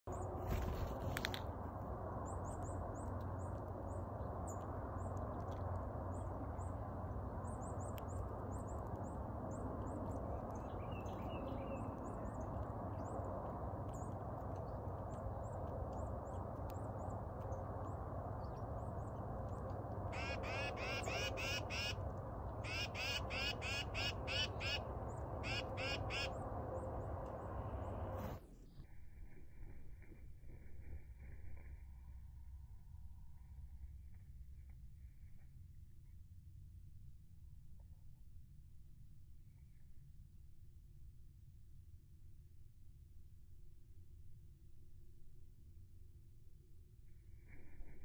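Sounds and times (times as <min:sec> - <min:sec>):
low background rumble: 0:00.1 - 0:48.0
titmouse scolding calls: 0:20.2 - 0:22.0, 0:22.6 - 0:26.4.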